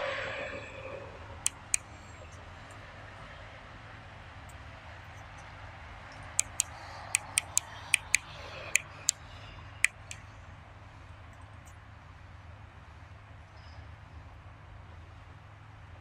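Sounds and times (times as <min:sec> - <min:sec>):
sharp clicks: 0:01.4 - 0:02.4, 0:06.1 - 0:10.3.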